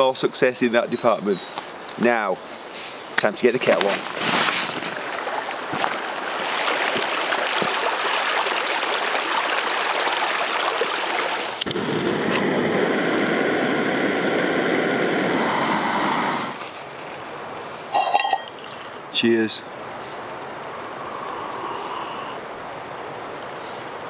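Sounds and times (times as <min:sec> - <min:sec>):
creek running over rocks: 0:03.2 - 0:13.2
gas burner hissing: 0:11.4 - 0:16.7.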